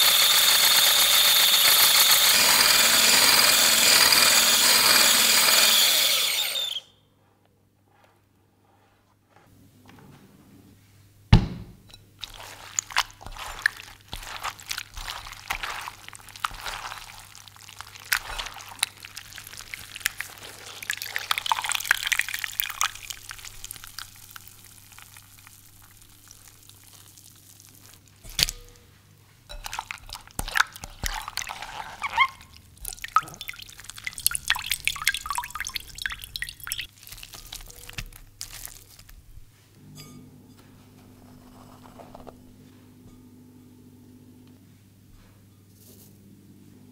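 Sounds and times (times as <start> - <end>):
squelching wet vegetable: 12.2 - 28.9, 29.5 - 39.5
water dripping into a bowl: 17.8 - 27.3, 29.5 - 36.9.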